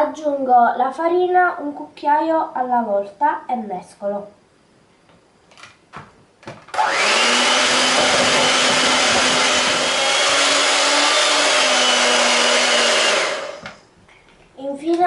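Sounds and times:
electric hand mixer running: 6.7 - 13.8.

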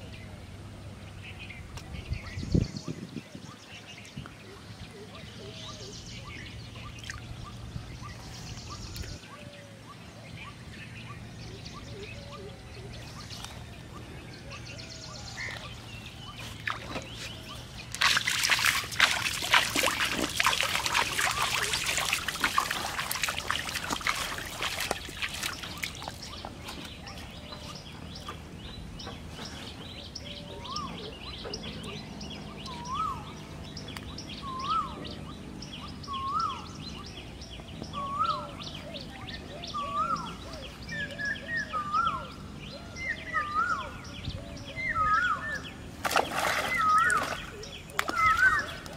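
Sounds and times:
small birds chirping: 0.0 - 48.9
small splashes on pond: 6.8 - 7.7, 16.2 - 28.0, 45.2 - 48.9.

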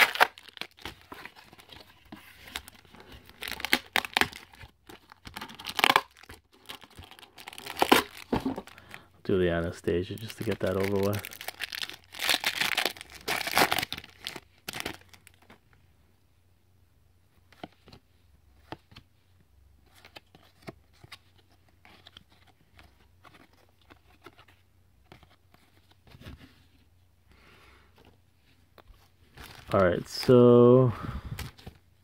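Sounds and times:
wrapper tearing with crinkly rustle: 0.0 - 1.8, 3.3 - 8.8, 10.0 - 15.4.

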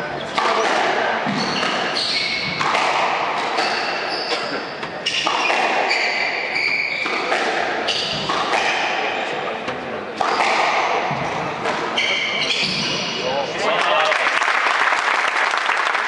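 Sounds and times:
shoes squeaking on floor: 0.0 - 8.8, 9.6 - 13.5
squash ball cracking off rackets: 0.3 - 4.0, 7.0 - 9.1, 9.7 - 12.1.

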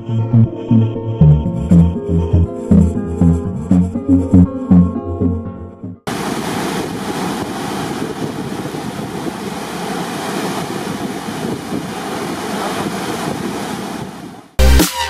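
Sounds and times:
wind on microphone: 6.1 - 14.5
water rushing in boat wake: 6.1 - 14.6.

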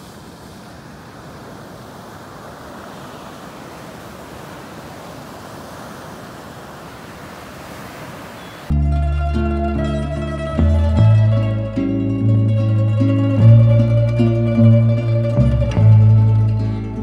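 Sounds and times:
ocean waves breaking on beach: 0.0 - 8.8.

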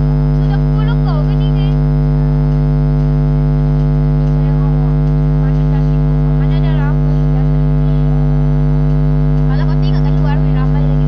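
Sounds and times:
electrical hum: 0.0 - 11.0
faint voice: 4.3 - 8.5.

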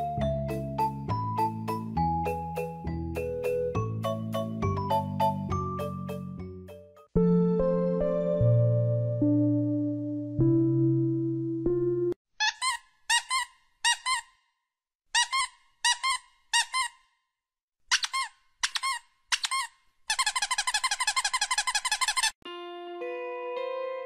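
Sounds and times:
rubber squeaky toy squeaks: 12.3 - 14.5, 15.1 - 17.2, 17.8 - 22.4.

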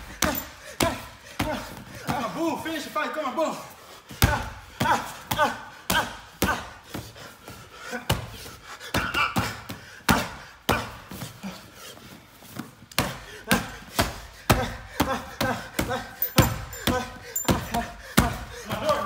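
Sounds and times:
fists punching heavy bag: 0.0 - 2.4, 12.9 - 19.0.

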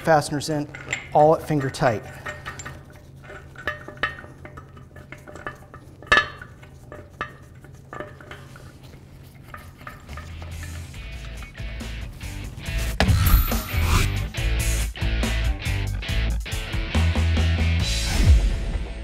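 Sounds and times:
metallic clicks of nuts threading: 0.0 - 8.5.

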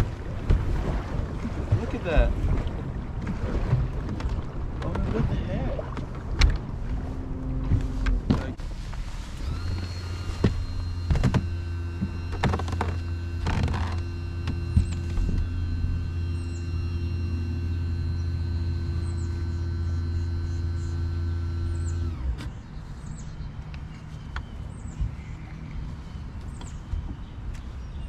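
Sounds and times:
electric motor humming and whining: 5.7 - 22.6.

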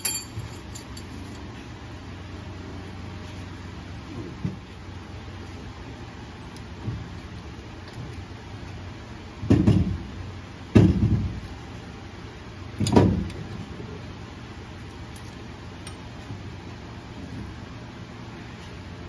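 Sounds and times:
dull metal thuds: 10.7 - 11.5.

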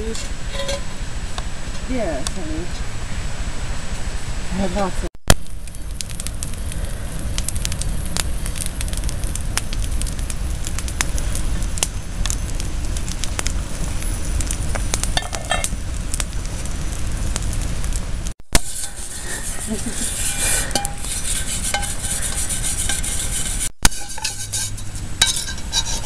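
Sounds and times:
campfire crackling and popping: 4.7 - 26.0.

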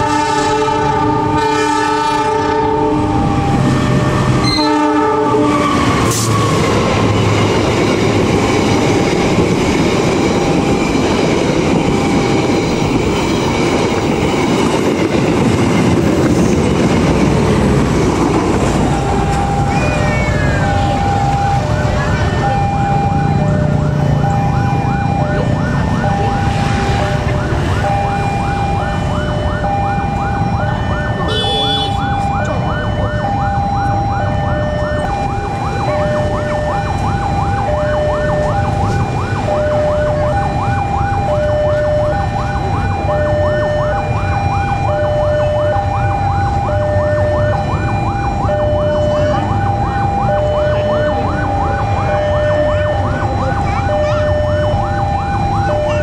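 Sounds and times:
level crossing warning alarm: 0.0 - 56.0
short high horn toot: 31.3 - 32.1.

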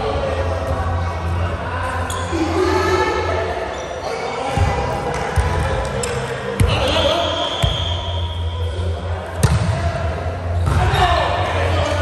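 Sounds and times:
volleyball hits echoing: 9.3 - 10.0.

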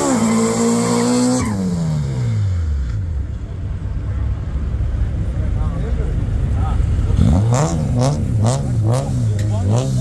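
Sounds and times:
car engine revving: 6.4 - 10.0.

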